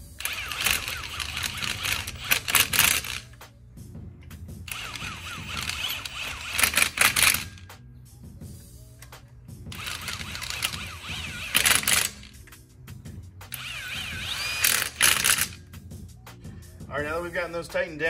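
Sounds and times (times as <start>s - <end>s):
impact wrench whirring and hammering: 0.0s - 3.5s, 4.6s - 7.7s, 9.7s - 15.9s.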